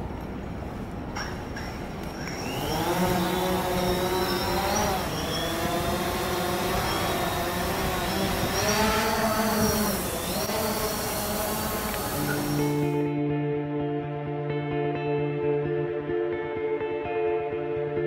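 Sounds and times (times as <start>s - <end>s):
quadcopter drone propellers whining: 1.6s - 13.1s.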